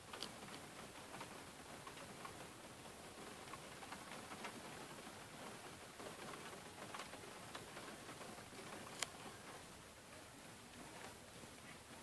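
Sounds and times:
rain hiss: 0:00.0 - 0:12.0
raindrops ticking on window: 0:00.0 - 0:12.0.

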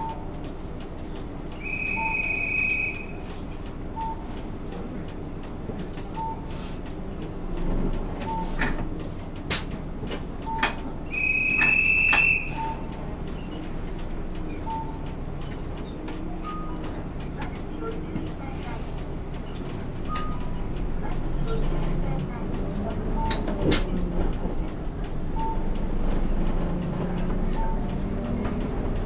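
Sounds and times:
bus engine idling: 0:00.0 - 0:29.0
short warning beeps: 0:01.6 - 0:03.2, 0:08.3 - 0:08.6, 0:10.5 - 0:13.0, 0:14.6 - 0:15.0, 0:20.1 - 0:20.5, 0:25.4 - 0:25.7, 0:27.5 - 0:27.9.

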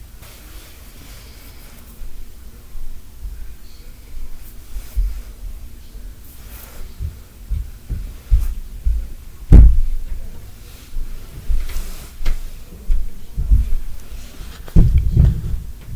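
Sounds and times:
dull low thuds: 0:06.9 - 0:10.3, 0:12.9 - 0:14.0, 0:14.7 - 0:15.9.

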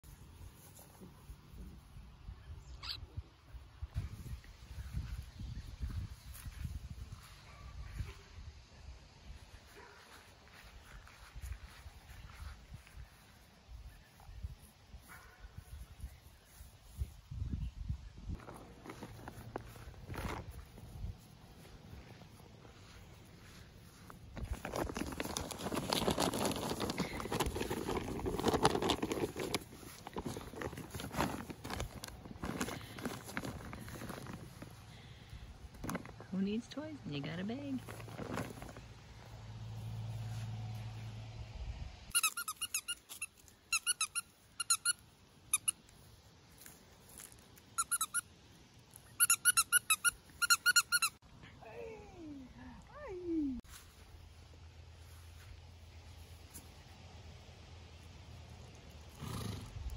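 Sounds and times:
puppies scuffling in grass: 0:00.0 - 0:02.2, 0:03.9 - 0:41.3, 0:53.4 - 0:59.1
plastic bag crackling: 0:24.3 - 0:35.0, 0:37.8 - 0:39.1
squeaky dog toy squeaking: 0:42.1 - 0:45.8, 0:47.8 - 0:48.3, 0:49.1 - 0:51.2.

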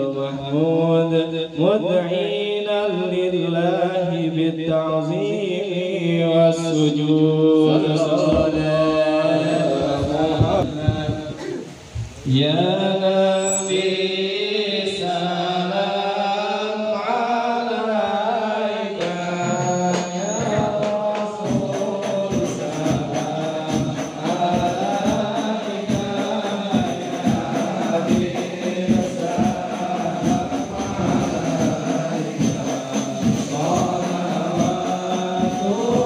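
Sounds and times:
men singing a chant together: 0:00.0 - 0:11.5, 0:12.3 - 0:36.0
frame drums beating: 0:08.0 - 0:12.4, 0:19.0 - 0:36.0.

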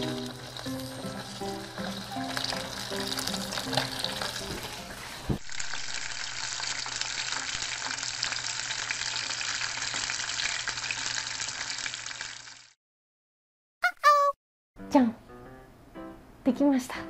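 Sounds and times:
octopus deep-frying in hot oil: 0:00.0 - 0:12.8.

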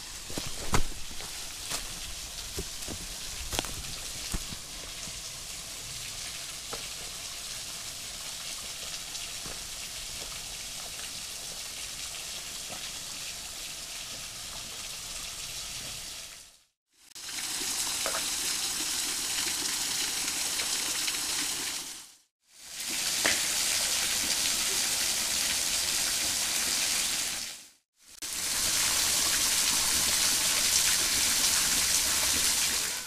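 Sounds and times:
footsteps on rock: 0:00.1 - 0:04.7
waterfall splashing onto stones: 0:00.2 - 0:15.2, 0:22.6 - 0:27.6, 0:28.2 - 0:33.0.

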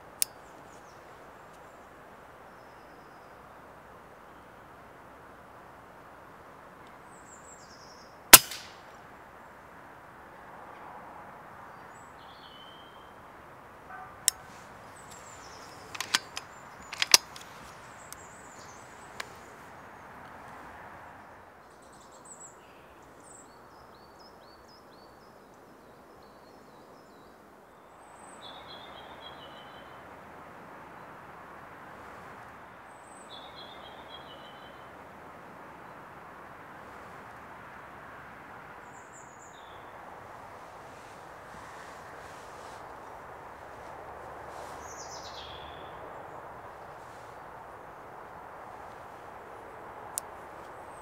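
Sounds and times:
air rifle firing crack: 0:08.3 - 0:08.8
small birds chirping: 0:14.4 - 0:20.2, 0:40.6 - 0:48.0.

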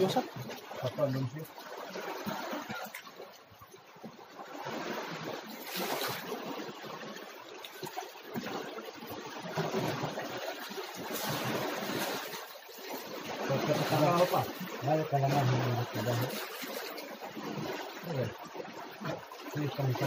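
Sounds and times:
water splashing and sloshing: 0:00.0 - 0:20.0.

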